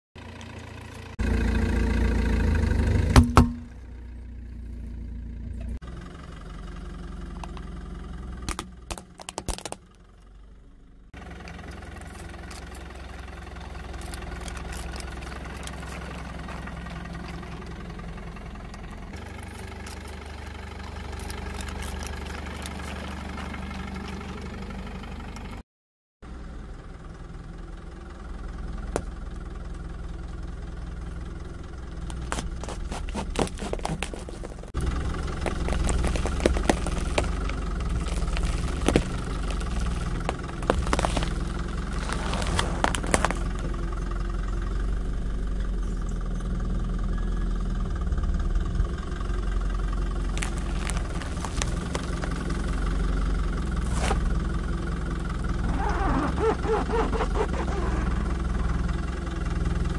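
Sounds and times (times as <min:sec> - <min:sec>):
car engine idling: 0:00.2 - 0:25.6, 0:26.2 - 0:59.9
sharp cracks and snaps: 0:20.8 - 0:23.1
tyre crushing plastic: 0:32.1 - 0:43.8, 0:50.2 - 0:52.6.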